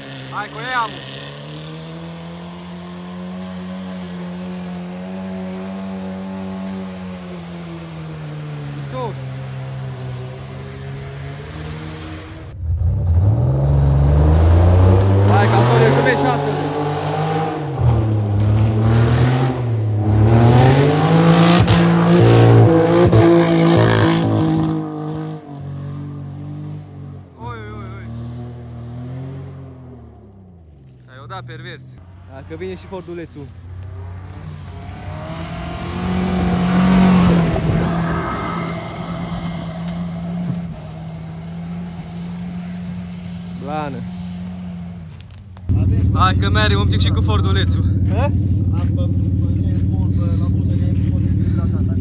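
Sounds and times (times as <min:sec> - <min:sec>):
car engine revving hard: 0:00.0 - 0:30.1, 0:34.2 - 0:45.1.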